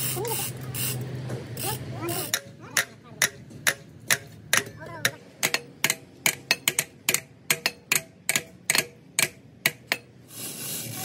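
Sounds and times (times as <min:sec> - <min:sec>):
hammer tapping on metal: 0:02.2 - 0:10.1.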